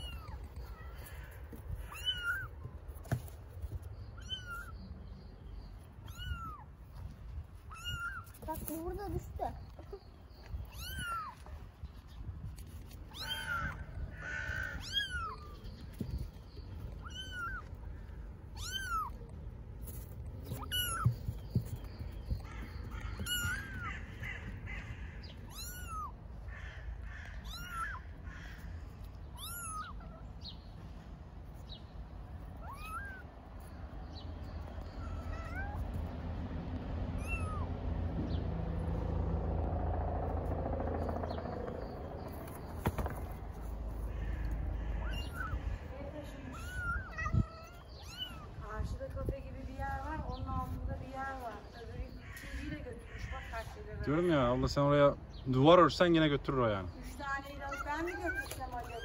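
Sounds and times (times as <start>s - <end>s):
low background rumble: 0.0s - 54.0s
kitten mewing: 25.5s - 26.2s, 27.4s - 28.7s, 29.3s - 30.3s, 44.3s - 48.6s.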